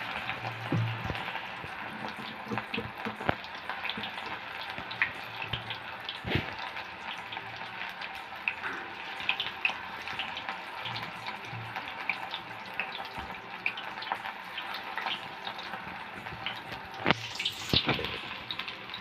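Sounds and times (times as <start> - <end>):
oil crackling pops: 0.0 - 7.4, 12.9 - 19.0
batter deep-frying in hot oil: 0.0 - 19.0.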